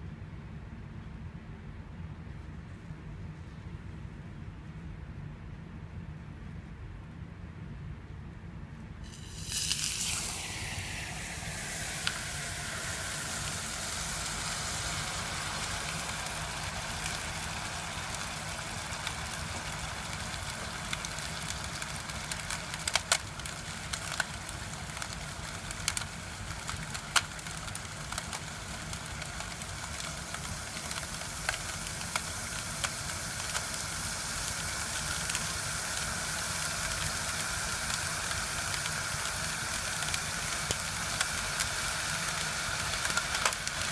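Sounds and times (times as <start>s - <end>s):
liquid hissing and sizzling: 9.0s - 43.9s.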